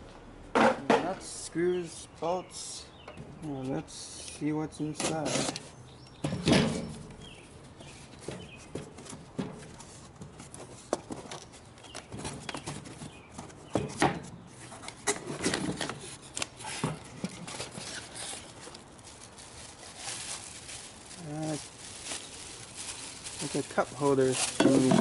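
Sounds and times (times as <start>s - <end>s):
taps and rustles: 5.0s - 18.8s
packing paper crinkling: 17.4s - 25.0s
plastic bag crinkling: 17.6s - 25.0s.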